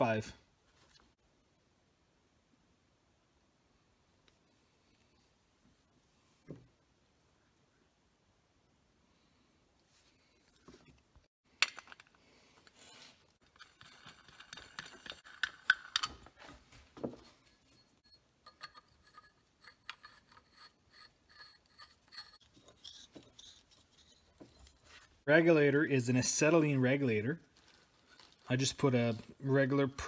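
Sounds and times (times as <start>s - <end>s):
metal parts knocking and rustling: 10.6s - 25.1s
metal fittings clinking: 13.4s - 16.5s, 17.4s - 25.0s
steel pipe screwing into coupler: 13.4s - 16.5s, 17.5s - 24.9s.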